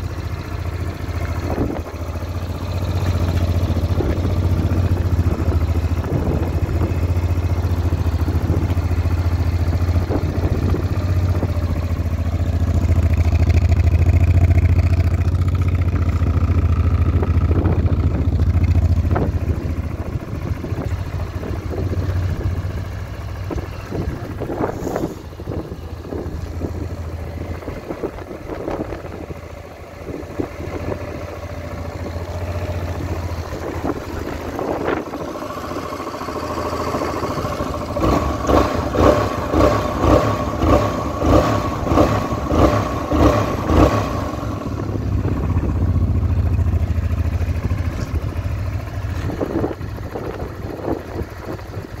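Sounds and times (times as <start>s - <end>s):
motorcycle engine idling: 0.0s - 52.0s.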